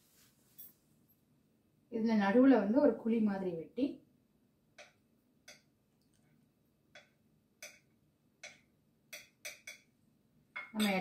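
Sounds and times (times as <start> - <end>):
spoon clicking against plate: 4.8 - 5.7, 7.0 - 9.9.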